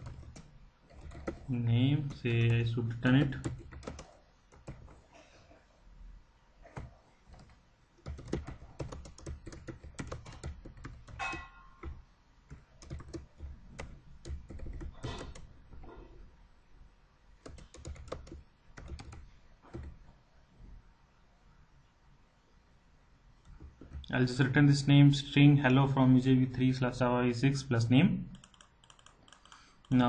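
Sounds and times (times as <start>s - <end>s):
typing on computer keyboard: 0.0s - 5.0s, 6.8s - 15.5s, 17.4s - 20.0s, 28.3s - 30.0s.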